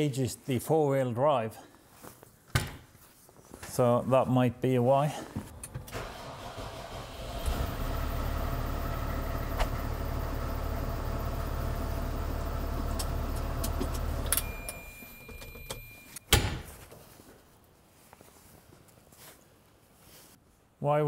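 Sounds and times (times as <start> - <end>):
tractor diesel engine idling: 5.9 - 14.7.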